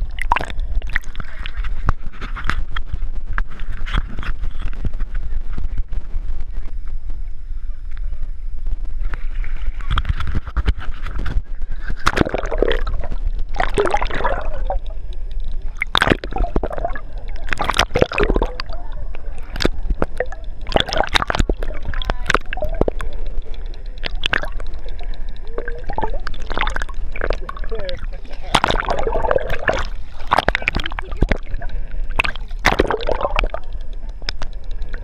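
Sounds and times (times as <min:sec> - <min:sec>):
water sloshing and gurgling: 0:00.0 - 0:07.0, 0:08.7 - 0:35.0
short sharp splashes: 0:28.4 - 0:33.6.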